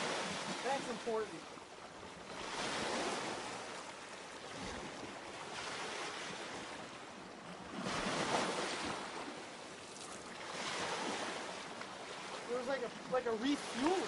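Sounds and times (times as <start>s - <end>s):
waves washing on rocky shore: 0.0s - 1.4s, 7.6s - 14.0s.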